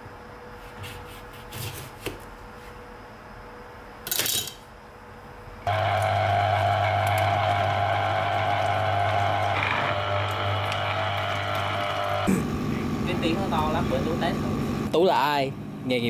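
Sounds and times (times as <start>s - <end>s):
citrus juicer motor humming: 5.7s - 15.7s.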